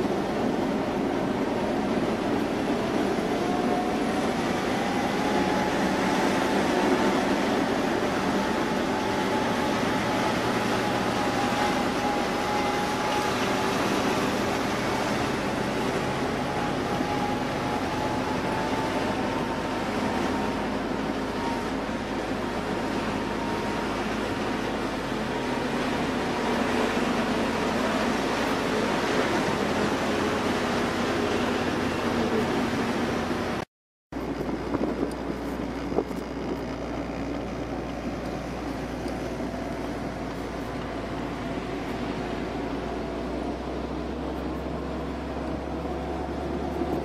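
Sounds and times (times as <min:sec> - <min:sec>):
vehicle engine and road noise: 0:00.0 - 0:47.0
thin whine: 0:34.2 - 0:47.0.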